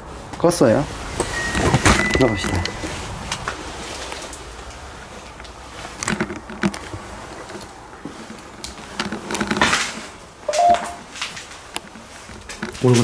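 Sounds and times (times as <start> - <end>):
electronic warning beep: 1.3 - 2.8, 10.5 - 11.0
footsteps and handling gear rustle: 2.5 - 13.0.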